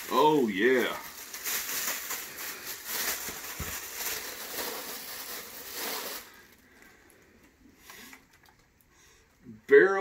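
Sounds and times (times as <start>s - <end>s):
plastic bag crinkling: 0.0s - 7.3s.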